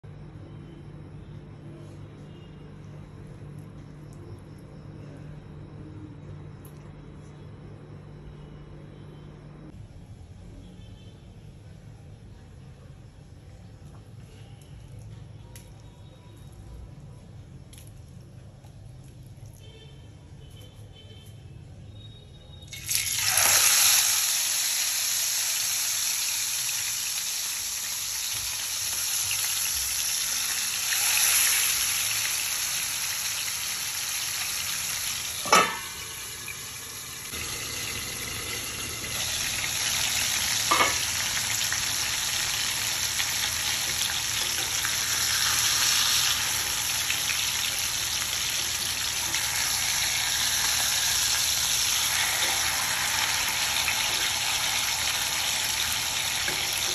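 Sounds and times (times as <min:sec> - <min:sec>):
fish sizzling in hot oil: 0:22.7 - 0:56.9
steel lid clanking on pan: 0:35.4 - 0:36.0.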